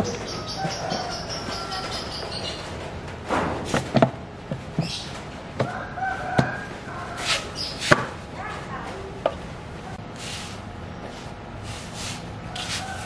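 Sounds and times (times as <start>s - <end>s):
rooster crowing: 0.3s - 2.4s, 5.6s - 7.5s, 12.5s - 13.0s
plastic tank knocking metal frame: 3.2s - 4.9s.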